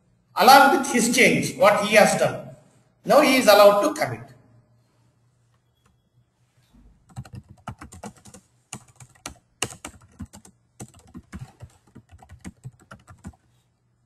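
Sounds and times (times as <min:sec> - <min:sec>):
typing on computer keyboard: 0:07.0 - 0:13.5.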